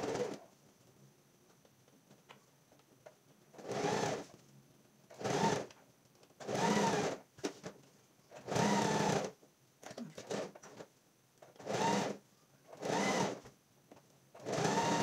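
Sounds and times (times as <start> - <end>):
sewing machine stitching: 0.0 - 0.4, 3.6 - 4.3, 5.1 - 5.7, 6.4 - 7.2, 8.4 - 9.4, 10.2 - 10.9, 11.5 - 13.4, 14.4 - 15.0.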